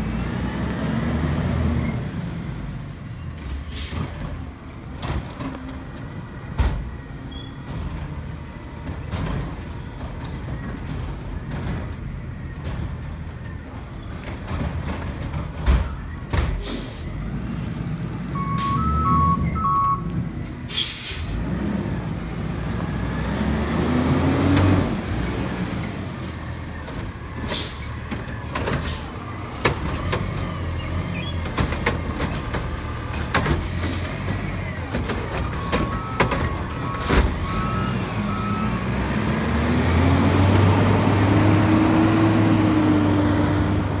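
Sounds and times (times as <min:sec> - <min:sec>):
beeping alarm: 0:18.4 - 0:20.1
garbage truck diesel engine revving: 0:21.3 - 0:25.8, 0:29.0 - 0:44.0.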